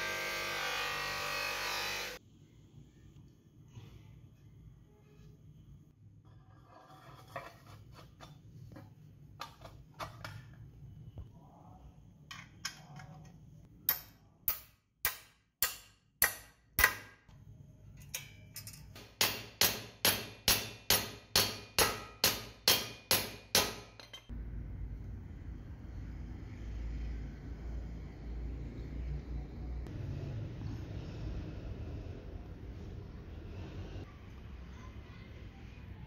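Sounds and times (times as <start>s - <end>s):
hammer striking metal rivet: 13.8s - 17.2s, 18.1s - 24.3s.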